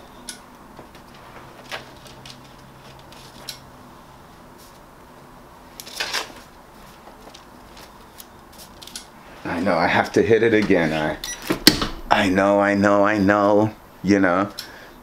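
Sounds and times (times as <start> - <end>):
faint steady hum: 0.0 - 15.0
paper rustle: 0.9 - 3.5, 5.8 - 9.0.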